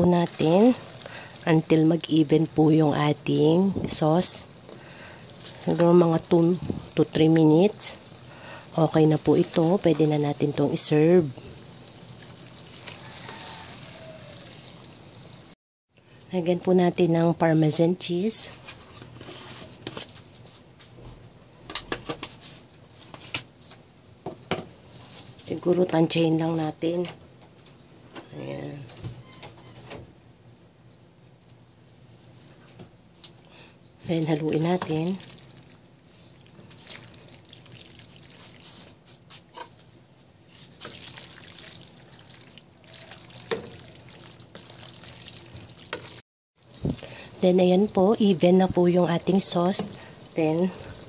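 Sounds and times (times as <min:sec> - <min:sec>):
wet stirring of pasta in sauce: 0:34.2 - 0:39.8, 0:40.5 - 0:47.1.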